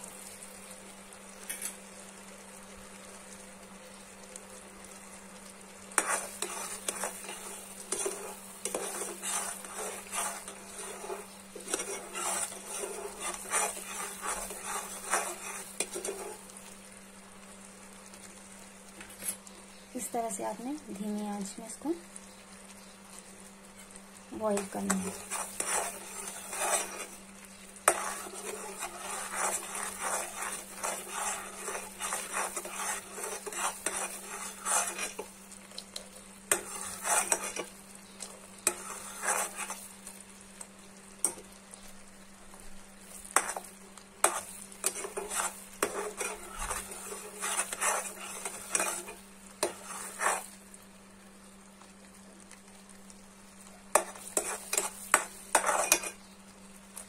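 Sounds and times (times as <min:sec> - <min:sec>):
metal spoon scraping a metal pot: 0:06.0 - 0:16.4, 0:24.9 - 0:27.2, 0:27.9 - 0:35.3, 0:36.5 - 0:37.7, 0:38.6 - 0:39.8, 0:44.2 - 0:50.4, 0:54.0 - 0:56.2
syrup bubbling: 0:25.1 - 0:37.7.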